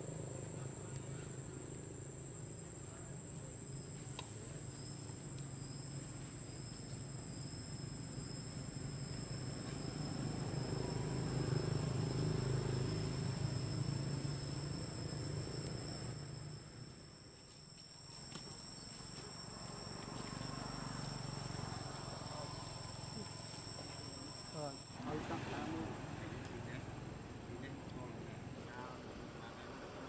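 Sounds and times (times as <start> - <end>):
insects calling: 0.0 - 30.0.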